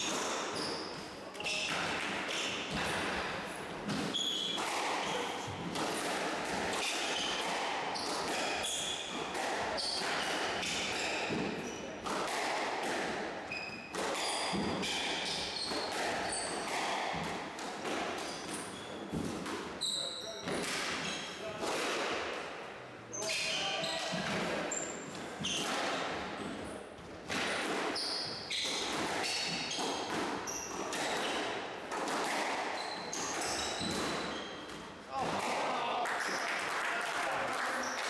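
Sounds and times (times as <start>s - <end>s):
shoes squeaking on wooden floor: 0.0s - 5.8s, 32.7s - 34.8s
squash ball hits: 0.0s - 19.8s, 20.4s - 22.4s, 24.0s - 26.6s, 27.2s - 35.8s.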